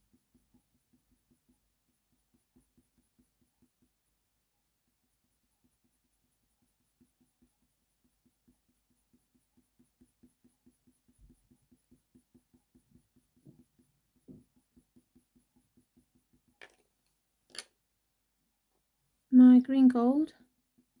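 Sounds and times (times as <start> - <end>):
pencil strokes on paper: 0.0 - 16.6, 20.4 - 21.0.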